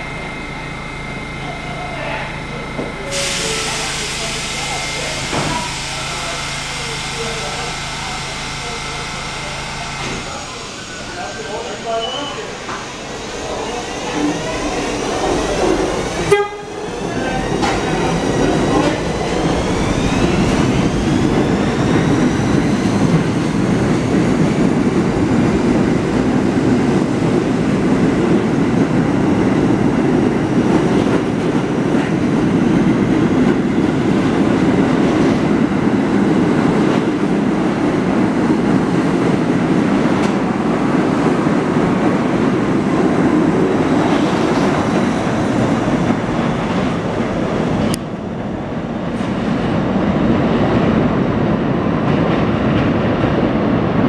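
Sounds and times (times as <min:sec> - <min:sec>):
train motor whine: 0:00.0 - 0:28.9
subway train rumbling: 0:00.0 - 0:54.0.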